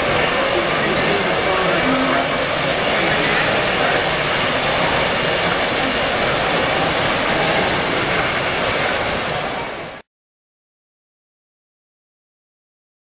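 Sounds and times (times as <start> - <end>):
model train rumbling on track: 0.0 - 10.0.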